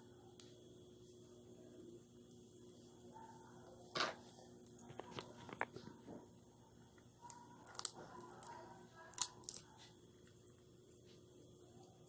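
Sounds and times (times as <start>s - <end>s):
chewing peanuts: 6.9s - 11.1s
peanut shells cracking: 7.3s - 10.6s.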